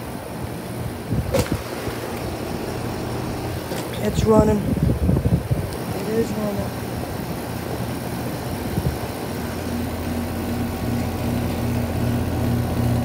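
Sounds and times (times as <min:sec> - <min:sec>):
air conditioner unit humming: 0:00.0 - 0:13.0
wavering drone: 0:01.5 - 0:05.0, 0:06.2 - 0:13.0.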